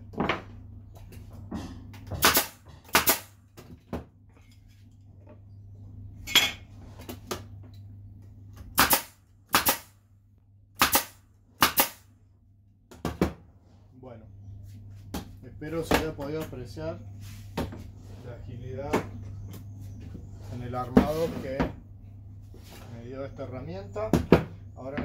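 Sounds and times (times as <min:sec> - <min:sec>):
pneumatic nailer firing nails: 0:02.1 - 0:03.4, 0:08.7 - 0:10.0, 0:10.8 - 0:12.1.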